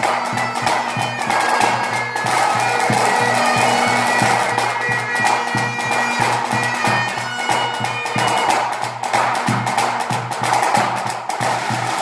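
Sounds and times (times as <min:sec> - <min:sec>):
bagpipes playing over drone: 0:00.0 - 0:08.8
tenor drums beating: 0:00.0 - 0:12.0.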